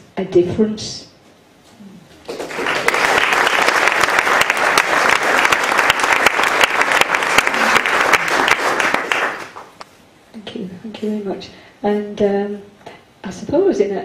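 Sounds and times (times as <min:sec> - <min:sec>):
audience applauding: 0:02.2 - 0:09.8.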